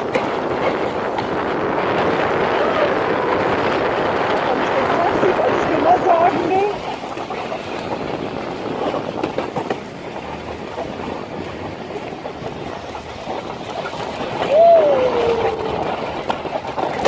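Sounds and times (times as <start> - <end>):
toboggan clattering: 0.0 - 17.0
toboggan scraping on asphalt: 0.0 - 17.0
person calling out: 14.6 - 15.9.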